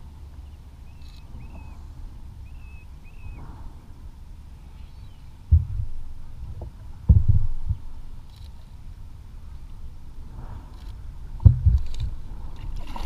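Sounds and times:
wind and water rumble: 0.0s - 13.0s
heavy thumps against kayak hull: 5.5s - 6.0s, 11.4s - 11.8s.

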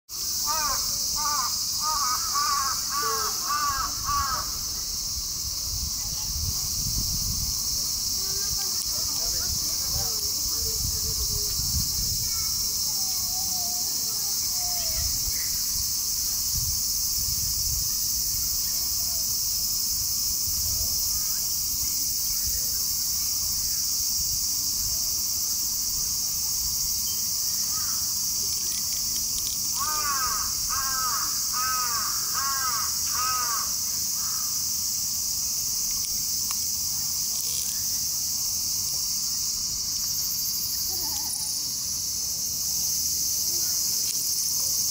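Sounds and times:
high-pitched insect chorus: 0.1s - 44.9s
crow cawing: 0.4s - 4.7s, 27.7s - 28.0s, 29.8s - 34.6s.

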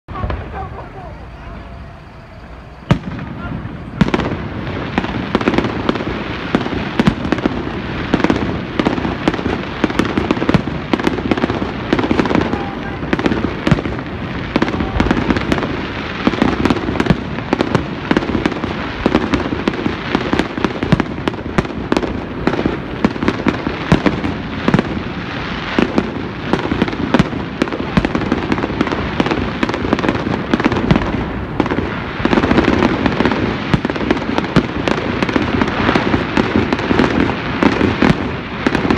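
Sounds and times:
fireworks bursting: 0.1s - 38.9s.

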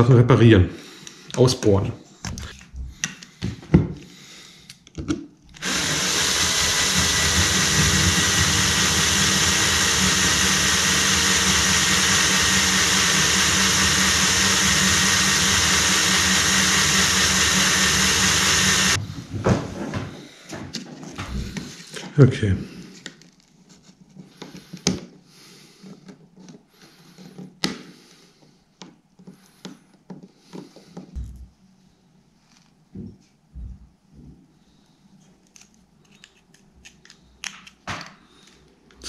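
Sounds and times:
cordless drill running: 5.6s - 19.0s.

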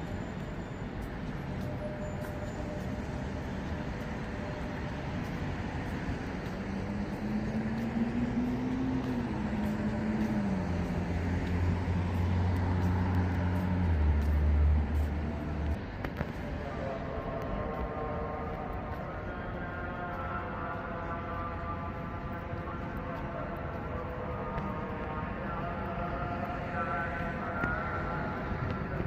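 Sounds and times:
passing vehicle engine hum: 0.0s - 16.9s
city road traffic: 0.0s - 29.0s.

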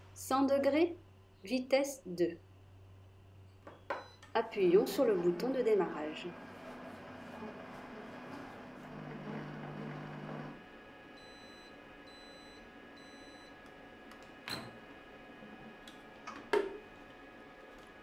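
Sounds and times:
kitchen robot motor hum: 4.6s - 10.6s.

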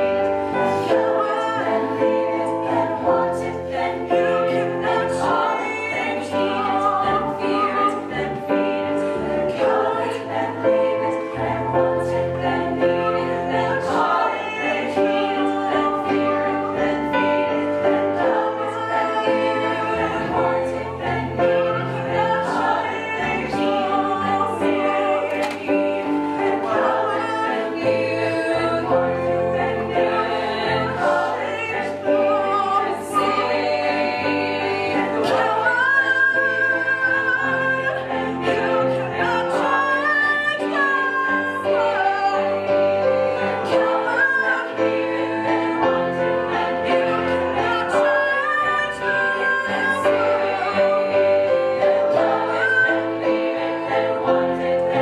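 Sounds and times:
women's choir singing in harmony: 0.0s - 55.0s.

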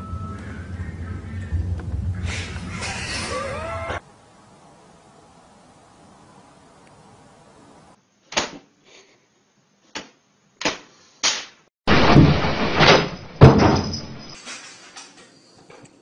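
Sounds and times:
crash of heavy thuds and clatter: 11.9s - 14.7s.

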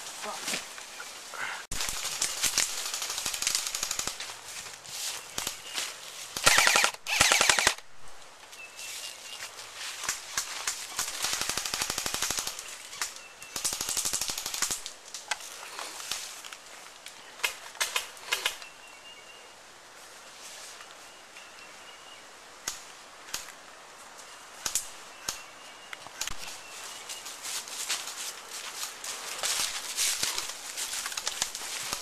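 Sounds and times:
airsoft gun full-auto bursts: 1.8s - 4.2s, 6.4s - 7.8s, 11.0s - 12.6s.

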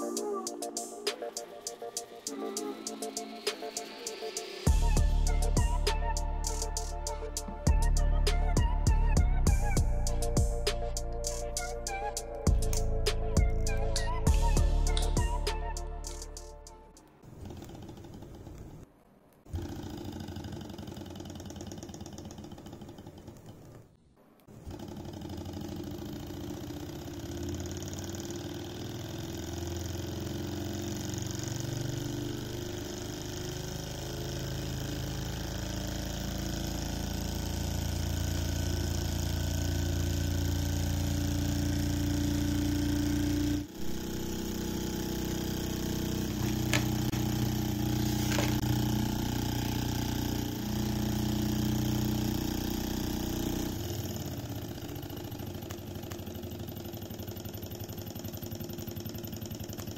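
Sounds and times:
model engine whir and clatter: 17.4s - 18.9s, 19.6s - 23.9s, 24.5s - 59.9s.

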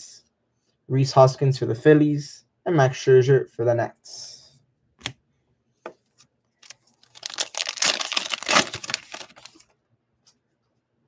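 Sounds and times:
wrapper tearing and crinkling: 6.6s - 9.6s.

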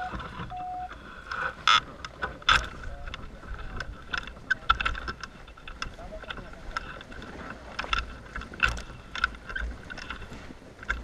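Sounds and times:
short electronic beep: 0.0s - 0.9s
wind rustling on wing: 0.0s - 11.0s.

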